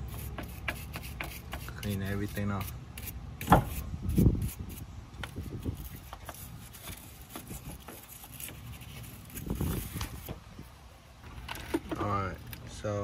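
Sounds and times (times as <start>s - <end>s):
stiff brush scrubbing metal: 0.0s - 10.3s.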